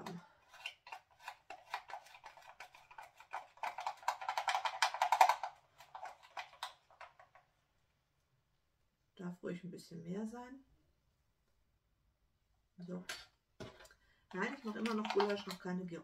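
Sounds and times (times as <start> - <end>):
plastic spice shaker rattling: 0.0 - 7.4, 13.6 - 15.6.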